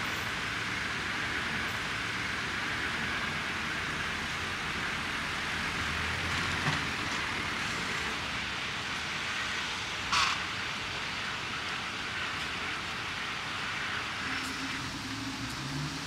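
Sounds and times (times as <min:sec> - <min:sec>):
street traffic noise: 0:00.0 - 0:16.0
passing vehicle rumble: 0:13.6 - 0:16.0.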